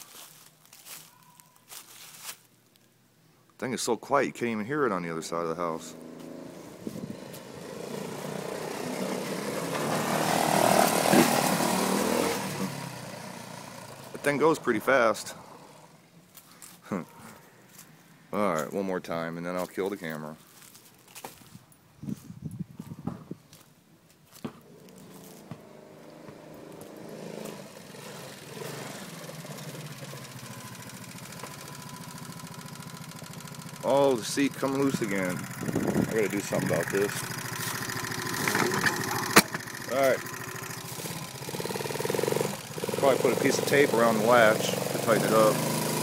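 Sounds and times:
quad bike engine passing: 4.7s - 16.2s, 24.3s - 46.0s.

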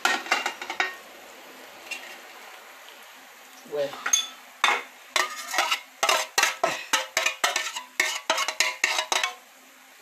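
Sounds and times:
frying pan knocking on stove: 0.0s - 1.0s, 6.0s - 9.4s.

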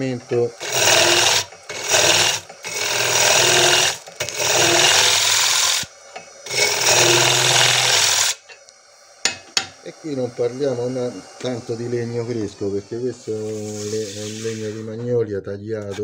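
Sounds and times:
lathe motor hum: 0.0s - 8.4s
tool scraping wood on lathe: 0.0s - 8.4s, 13.2s - 15.0s.

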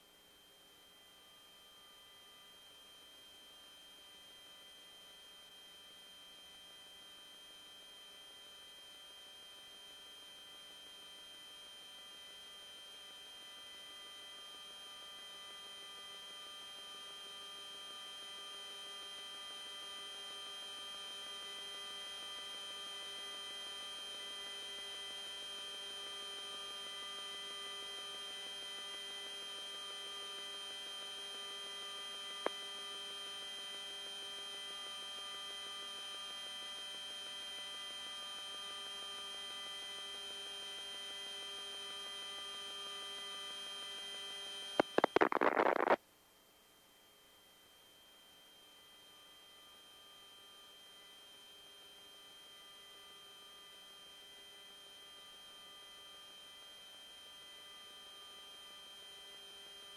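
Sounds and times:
short crackling burst: 44.8s - 46.0s
steady electrical hum: 44.8s - 46.0s.

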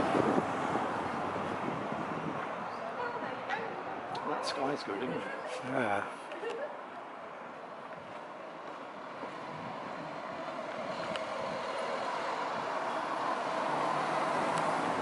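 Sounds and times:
van engine and tyre noise: 0.0s - 4.8s, 5.5s - 15.0s.

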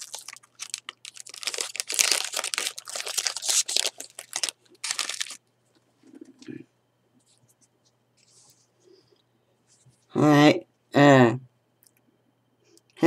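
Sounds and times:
foil wrapper tearing and crinkling: 0.0s - 5.4s.

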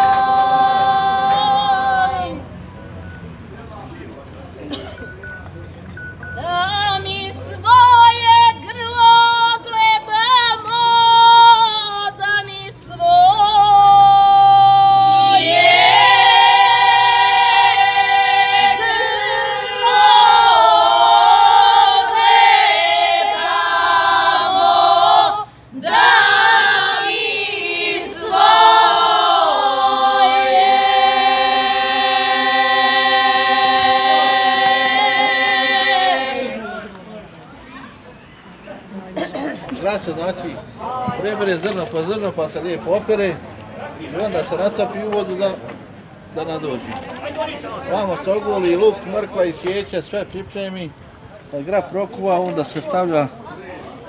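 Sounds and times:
women singing a cappella: 0.0s - 2.6s, 6.4s - 36.8s.

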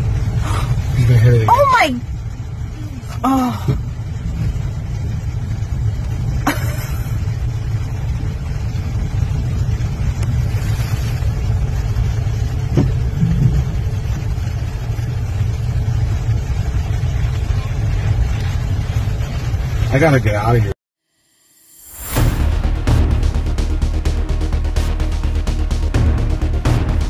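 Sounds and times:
car cabin rumble: 0.0s - 20.7s.

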